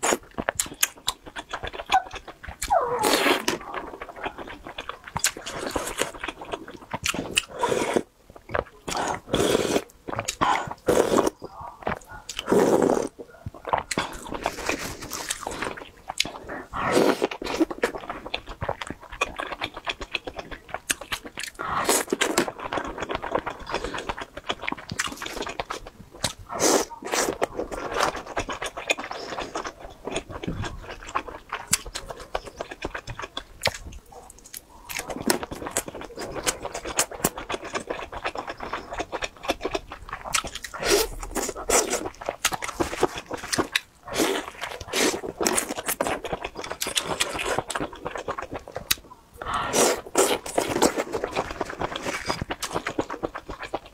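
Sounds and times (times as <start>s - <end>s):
close chewing: 0.0s - 53.9s.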